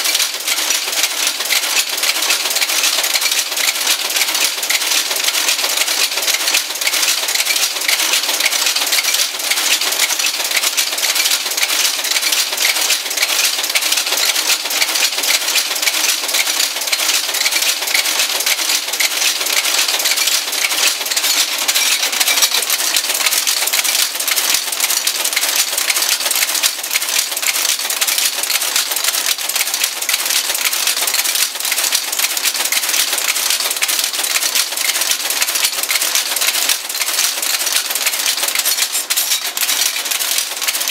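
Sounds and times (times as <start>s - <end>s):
type casting machine clattering: 0.0s - 40.9s.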